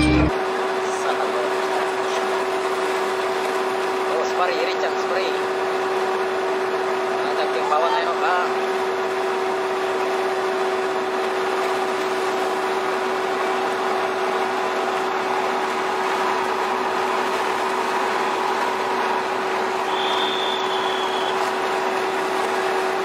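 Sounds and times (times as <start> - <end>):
boat machinery droning: 0.0 - 23.0
constant hum: 0.0 - 23.0
short high squeal: 19.9 - 21.4.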